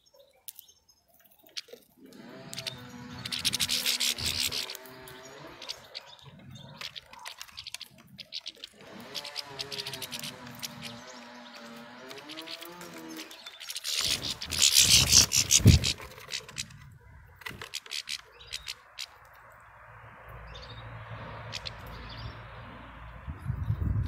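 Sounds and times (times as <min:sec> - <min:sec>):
birds cracking seeds: 0:00.3 - 0:23.1
rustling burst with thump: 0:12.2 - 0:16.8.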